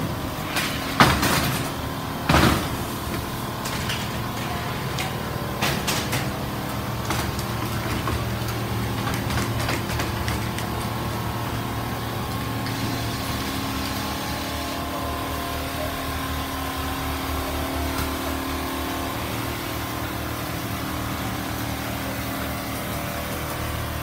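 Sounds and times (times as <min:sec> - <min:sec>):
machines droning: 0:00.0 - 0:24.0
quilting machine humming: 0:00.0 - 0:24.0.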